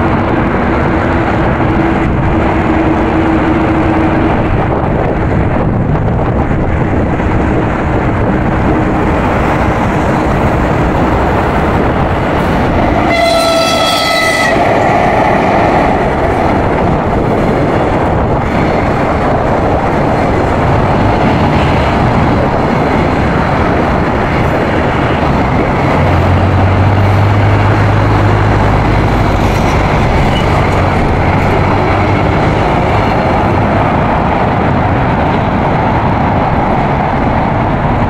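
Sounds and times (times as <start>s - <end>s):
train wheels on rail: 0.0s - 38.0s.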